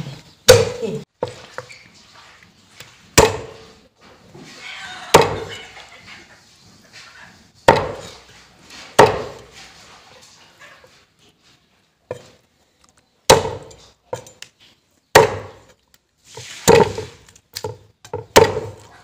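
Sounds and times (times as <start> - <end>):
cleaver chopping on wooden block: 0.5 - 1.4, 3.2 - 3.6, 5.1 - 5.5, 7.7 - 8.2, 9.0 - 9.5, 13.3 - 14.4, 15.2 - 15.6, 16.7 - 18.8.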